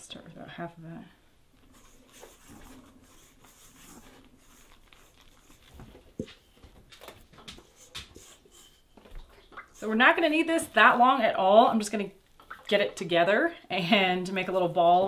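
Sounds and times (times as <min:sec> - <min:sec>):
dough scraping from metal bowl: 0:01.7 - 0:05.8.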